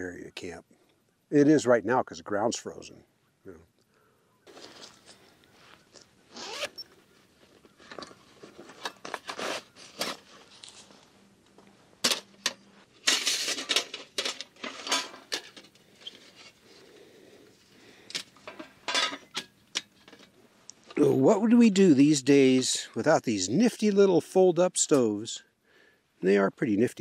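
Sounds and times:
handling noise: 4.5s - 21.0s
metal panels clinking: 12.0s - 16.6s, 18.1s - 20.3s.

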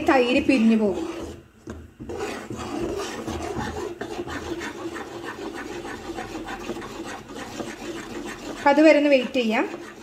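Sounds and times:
metal spoon scraping a pan: 2.0s - 10.0s.

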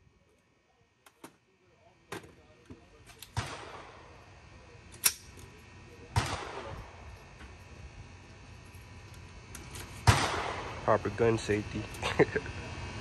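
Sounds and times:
gunshots: 3.3s - 4.1s, 6.1s - 7.0s, 10.0s - 10.9s.

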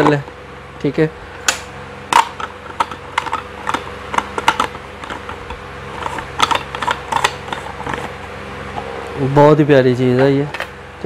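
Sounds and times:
plastic juicer parts clicking: 2.2s - 8.1s.

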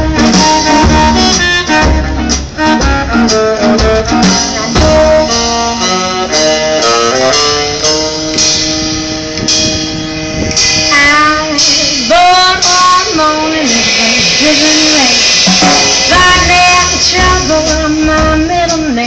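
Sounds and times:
plucked upright bass: 0.0s - 11.2s
saxophones playing melody: 0.0s - 18.7s
swing band playing: 0.0s - 19.0s.

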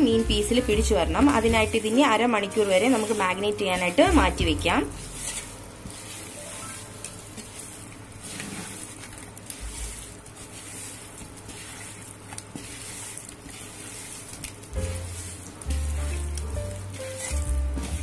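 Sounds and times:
fish squelching in a bowl: 4.9s - 18.0s.

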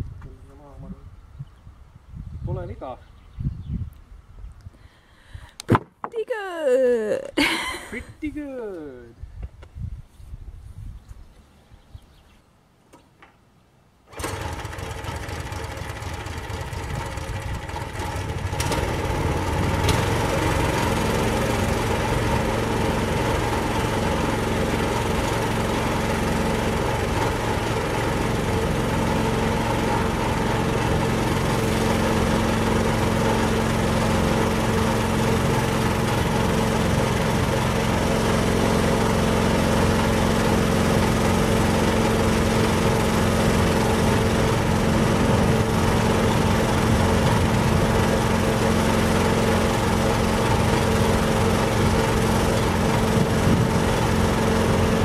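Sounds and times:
small engine starting and running: 14.1s - 55.0s.

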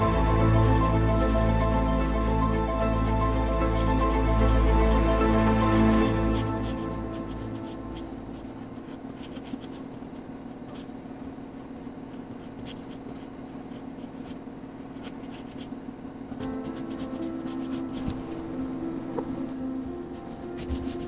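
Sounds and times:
pencil scratching on paper: 0.4s - 2.4s, 3.6s - 10.9s, 12.0s - 18.2s, 20.1s - 21.0s.

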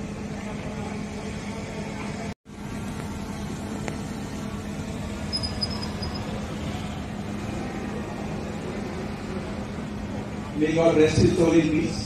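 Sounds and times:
constant low hum: 0.0s - 12.0s
faint high chirp: 5.3s - 6.4s.

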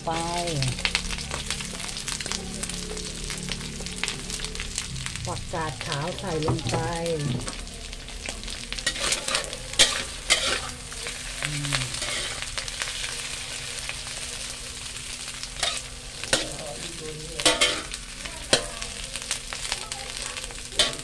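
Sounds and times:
food sizzling in a wok: 0.0s - 21.0s
metal spatula scraping pan: 8.8s - 11.2s, 11.9s - 13.1s, 15.5s - 18.7s.

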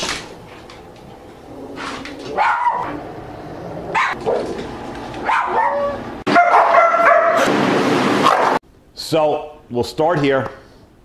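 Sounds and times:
dog barking: 2.4s - 3.0s, 3.9s - 4.6s, 5.2s - 7.5s, 8.2s - 8.6s.

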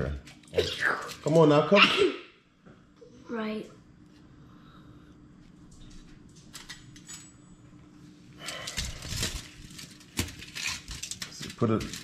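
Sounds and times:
aluminium foil crinkling: 8.4s - 12.0s.

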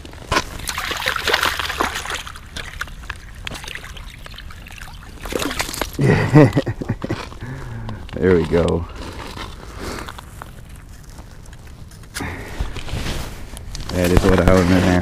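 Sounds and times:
scuffs and clicks of ice: 0.0s - 6.1s, 6.8s - 15.0s
water sloshing: 0.0s - 7.4s
fish splashing and thrashing: 0.0s - 8.1s.

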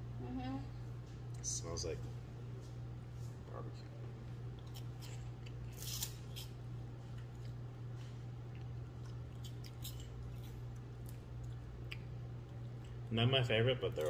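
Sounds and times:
steady low hum: 0.0s - 14.0s
people chewing crunchy snacks: 8.5s - 13.1s.

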